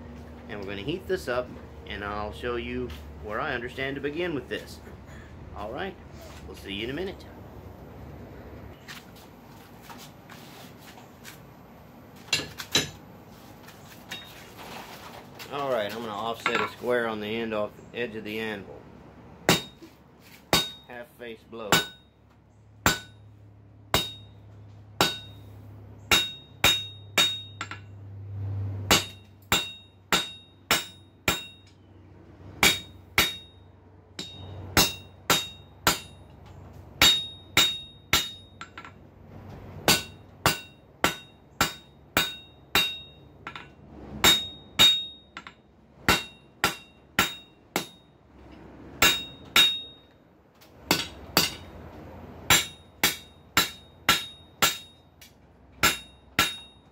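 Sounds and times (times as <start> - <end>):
hammer striking steel on anvil: 12.3 - 13.0, 19.5 - 19.9, 20.5 - 20.9, 21.7 - 22.1, 22.8 - 23.2, 23.9 - 24.4, 25.0 - 25.5, 26.1 - 27.9, 28.9 - 31.8, 32.6 - 33.6, 34.2 - 36.4, 37.0 - 39.0, 39.8 - 48.1, 49.0 - 50.2, 50.9 - 51.8, 52.5 - 56.9.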